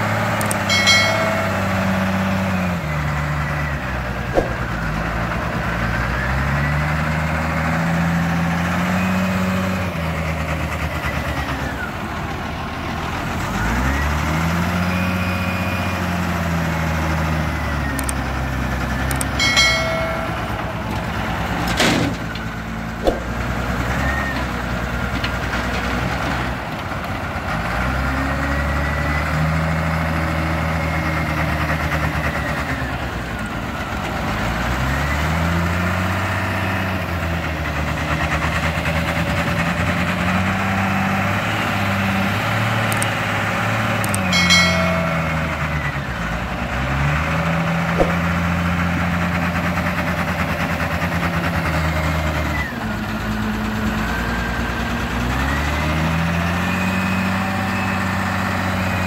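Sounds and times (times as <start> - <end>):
engine whine: 0.0 - 25.8, 39.2 - 51.0
wheel loader diesel engine working: 0.0 - 59.0.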